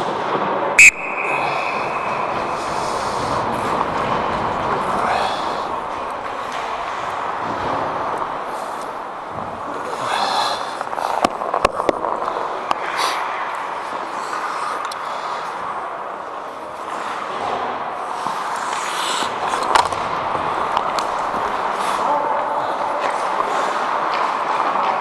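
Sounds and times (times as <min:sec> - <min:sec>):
hockey sticks and puck clacking: 0:00.0 - 0:25.0
skate blades scraping ice: 0:01.2 - 0:13.2, 0:13.8 - 0:15.7, 0:16.7 - 0:25.0.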